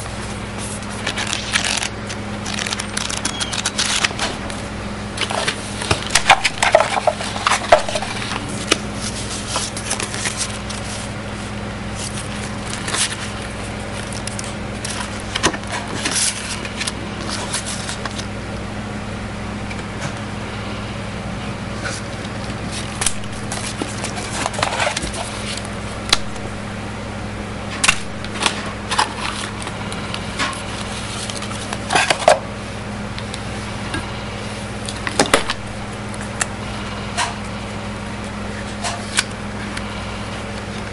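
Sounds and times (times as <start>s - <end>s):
paper and cardboard rustling: 0.0s - 4.6s, 5.2s - 18.3s, 21.8s - 25.7s, 28.3s - 32.4s
steady low hum: 0.0s - 40.9s.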